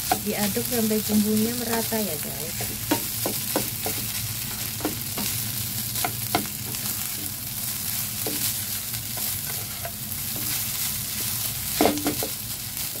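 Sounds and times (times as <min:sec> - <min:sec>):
rice sizzling in a pan: 0:00.0 - 0:13.0
spatula tapping and scraping pan: 0:02.5 - 0:07.4, 0:08.2 - 0:12.4.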